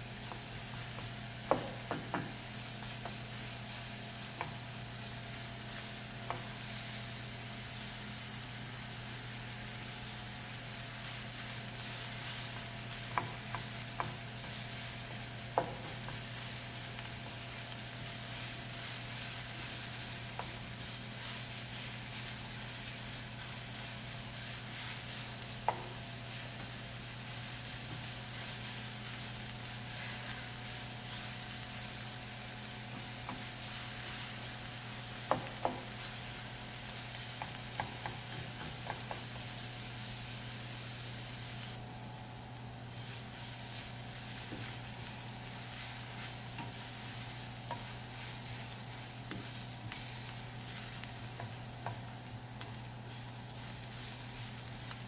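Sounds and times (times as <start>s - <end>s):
onions sizzling in a frying pan: 0.0s - 55.0s.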